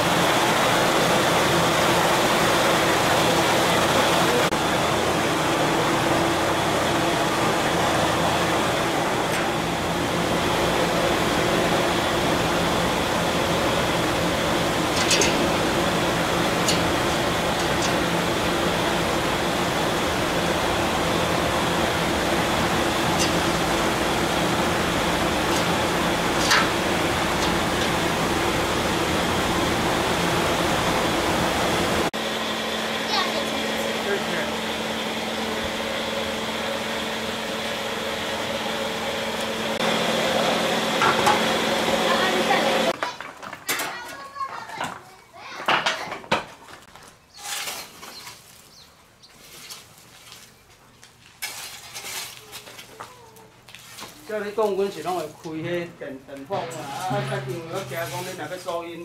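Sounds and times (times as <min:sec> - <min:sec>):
metal shovel scraping coals: 0:14.6 - 0:19.4, 0:21.9 - 0:28.8, 0:47.4 - 0:48.1, 0:51.4 - 0:52.5
steady rushing noise: 0:56.5 - 0:58.7.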